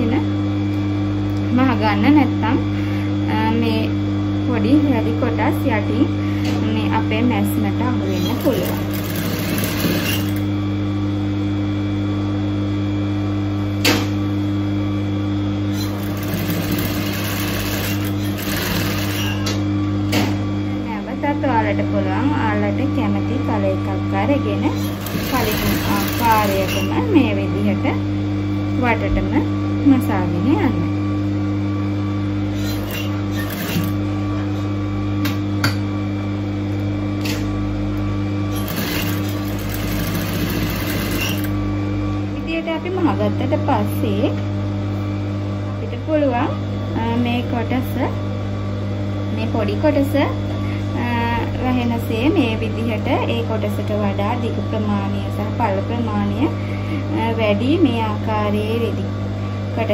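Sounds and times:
sewing machine motor humming: 7.9s - 10.5s, 15.7s - 19.6s, 24.5s - 27.0s, 32.5s - 34.2s, 38.5s - 41.6s.

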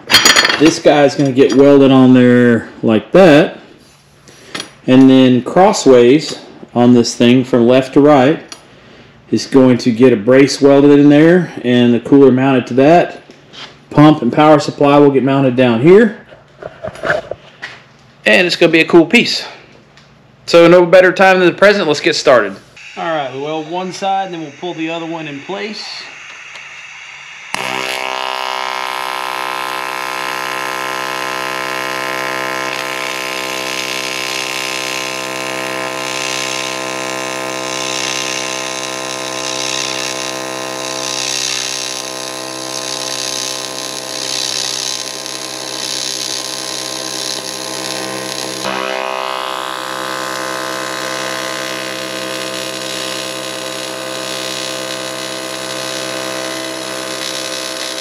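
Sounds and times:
welding arc buzzing: 21.2s - 58.0s.

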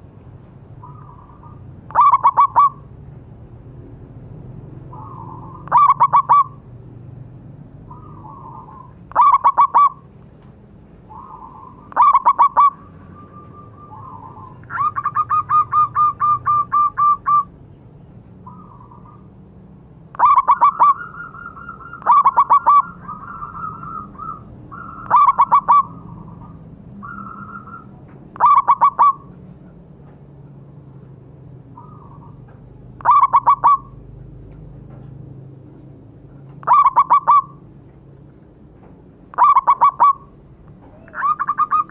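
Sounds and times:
dove cooing: 0.8s - 2.9s, 4.8s - 6.7s, 7.9s - 10.1s, 11.1s - 17.5s, 20.1s - 29.4s, 33.0s - 34.1s, 36.6s - 37.6s, 39.3s - 41.9s.

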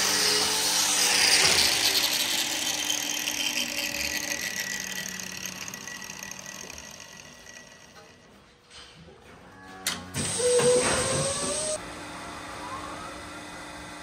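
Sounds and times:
angle grinder running: 0.0s - 8.4s.

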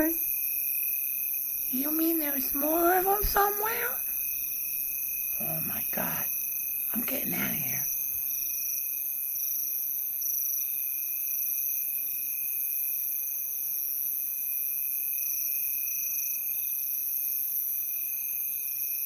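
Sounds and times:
high pulsing insect trill: 0.0s - 19.0s
insect chorus drone: 0.0s - 19.0s.

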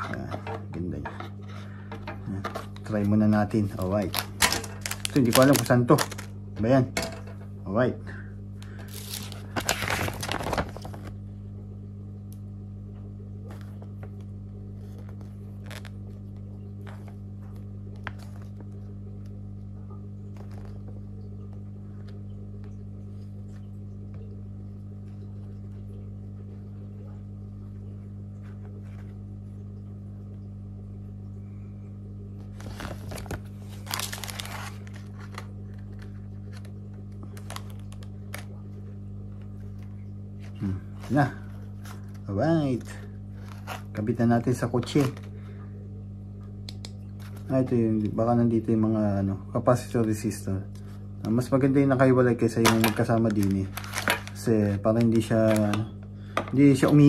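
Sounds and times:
steady low hum: 0.0s - 57.0s
paper and packaging rustling: 2.3s - 6.4s, 8.8s - 11.2s, 32.6s - 38.5s, 41.0s - 44.0s, 52.6s - 55.8s.

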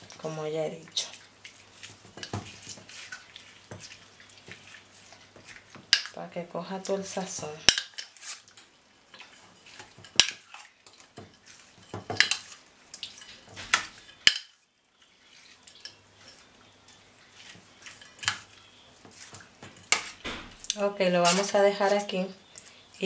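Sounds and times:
spoon scraping metal bowl: 17.3s - 20.2s, 21.1s - 22.2s.

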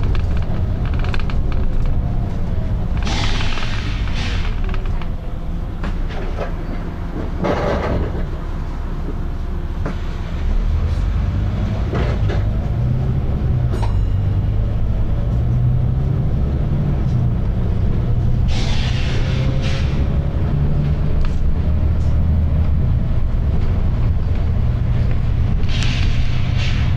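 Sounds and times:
bus diesel engine pulling: 0.0s - 26.9s
air hiss: 3.0s - 4.6s, 18.5s - 20.0s.

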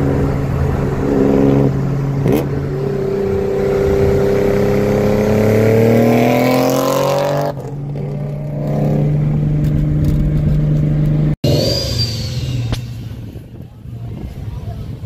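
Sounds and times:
car engine accelerating: 0.0s - 15.0s.

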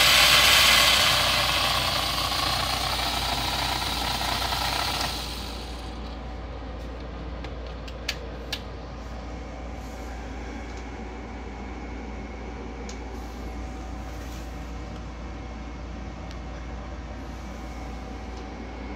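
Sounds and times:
electric motor whirring: 0.0s - 5.9s.

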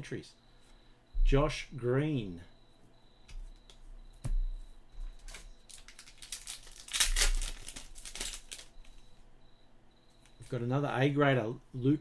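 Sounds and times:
foil pack crinkling: 5.2s - 9.0s.

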